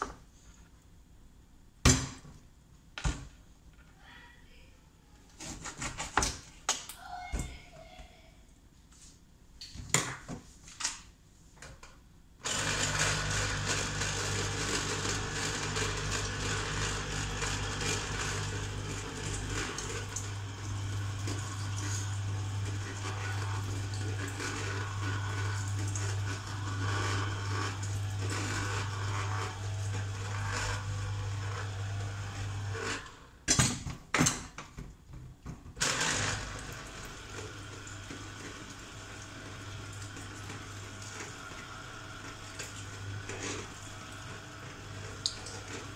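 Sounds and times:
juicer motor humming: 12.4 - 33.4, 35.8 - 45.9.

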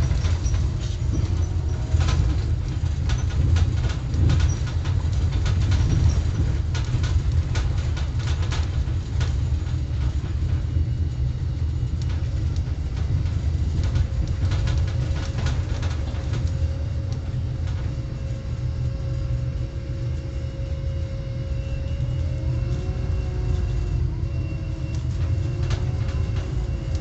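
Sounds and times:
steady hum: 0.0 - 27.0
vehicle rumble from inside: 0.0 - 27.0
clicks and rattles: 12.0 - 18.4.

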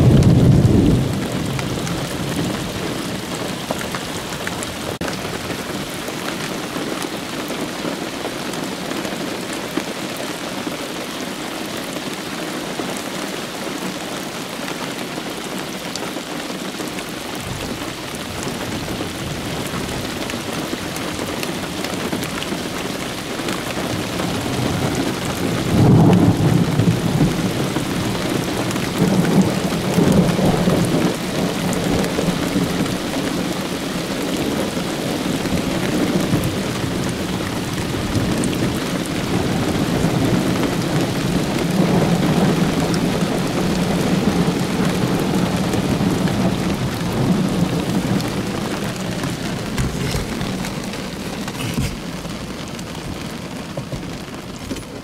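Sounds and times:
thunder rolling: 0.0 - 2.9
steady rain falling: 0.0 - 55.0.

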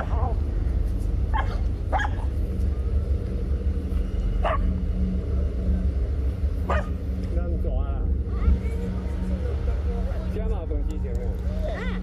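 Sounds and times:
low rumble: 0.0 - 12.0
dog barking: 1.3 - 2.3, 4.4 - 4.7, 6.7 - 7.0.

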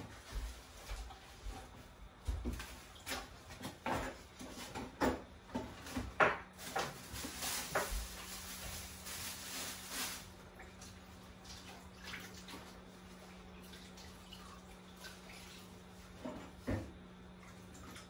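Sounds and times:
meat bubbling in a saucepan: 10.4 - 16.5.

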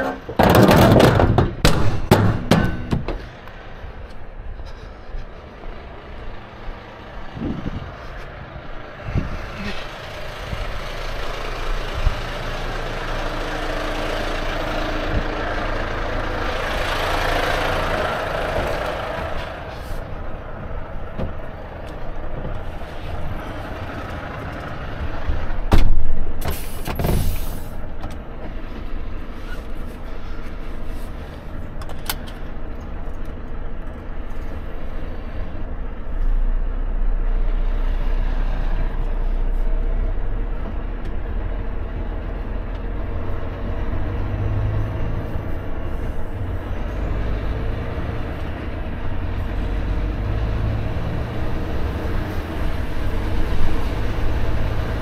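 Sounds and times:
metal clanks at trailer: 0.0 - 3.5
truck diesel engine running: 0.0 - 55.0
loud knocks: 0.3 - 3.3.

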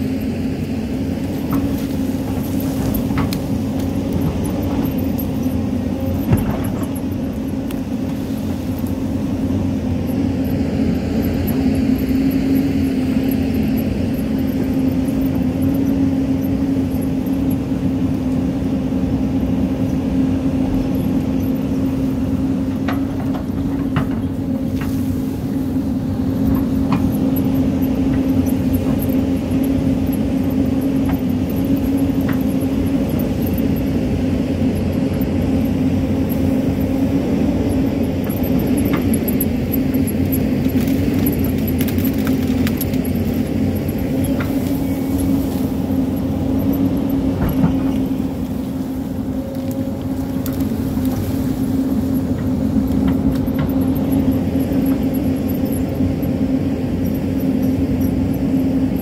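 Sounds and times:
excavator diesel engine running: 0.0 - 59.0
rock and soil clattering: 38.8 - 45.9.

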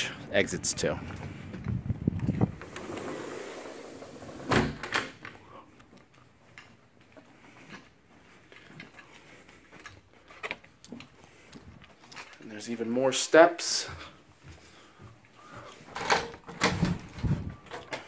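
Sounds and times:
outdoor noise: 0.0 - 18.0
sliding glass door closing: 2.4 - 5.2.

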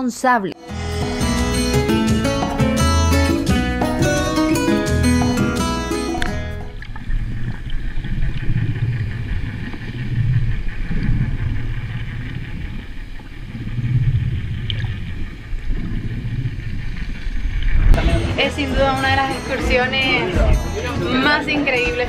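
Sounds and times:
muffled underwater water rumble: 6.2 - 19.0.

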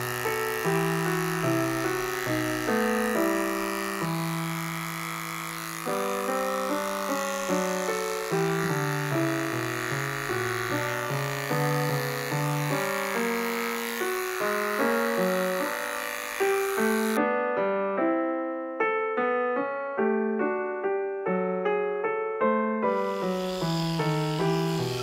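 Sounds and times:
electric dog clippers buzzing: 0.0 - 17.2, 22.8 - 25.0
solo piano music: 0.0 - 25.0.

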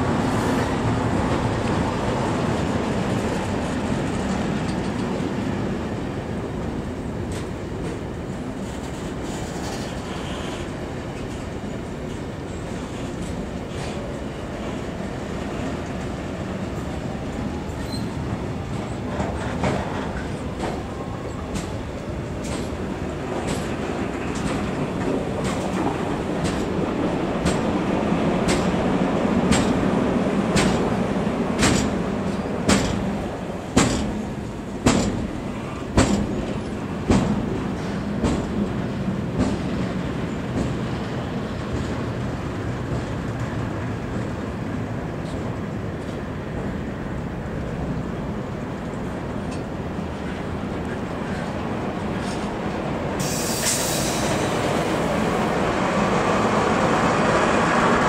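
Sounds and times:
freight train wheels rumbling: 0.0 - 58.0
wheels clacking over rail joints: 17.6 - 46.7.

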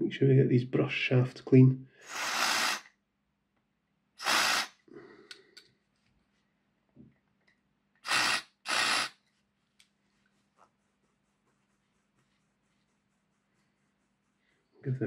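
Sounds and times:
aerosol spray hissing: 2.0 - 2.9, 4.2 - 4.8, 8.0 - 9.2.

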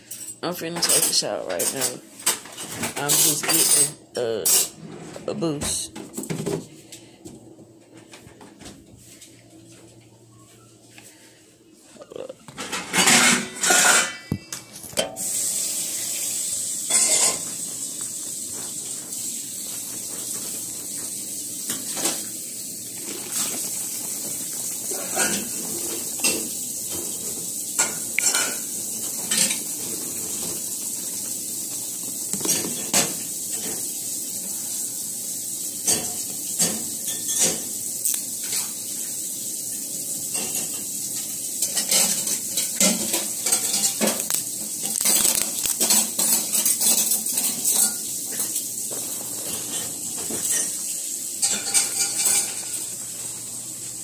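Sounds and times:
containers and utensils clinking: 0.1 - 4.8, 12.1 - 15.3, 16.8 - 17.6, 18.4 - 30.8, 32.0 - 33.8, 40.3 - 53.0
steady high hiss: 15.2 - 35.8.

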